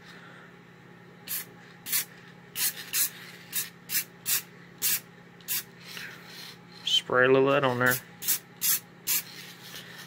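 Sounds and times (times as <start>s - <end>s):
aerosol spray can hissing: 1.3s - 5.7s, 8.2s - 9.4s.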